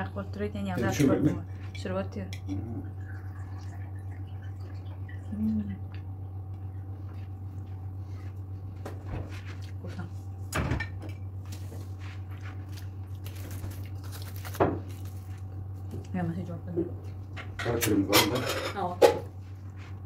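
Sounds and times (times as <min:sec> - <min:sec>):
steady low hum: 0:00.0 - 0:20.0
aluminium foil crinkling: 0:11.4 - 0:15.9.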